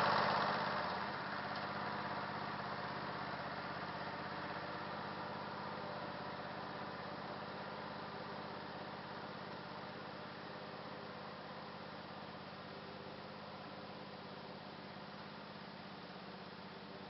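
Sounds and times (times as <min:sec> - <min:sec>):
garden tractor engine running: 0:00.0 - 0:17.0.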